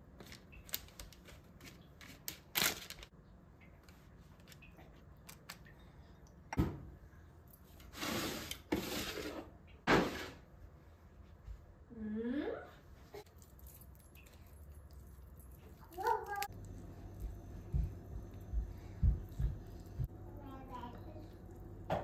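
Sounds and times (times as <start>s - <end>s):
baking paper rustling: 0.1s - 3.1s
pastry brush dabbing: 13.3s - 21.8s.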